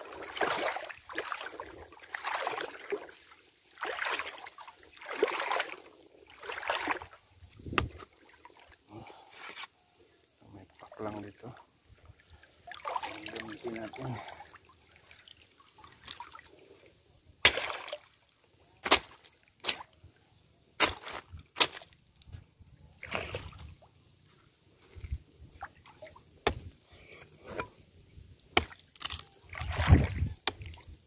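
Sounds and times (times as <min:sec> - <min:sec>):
knife chopping frond: 0:20.8 - 0:21.8.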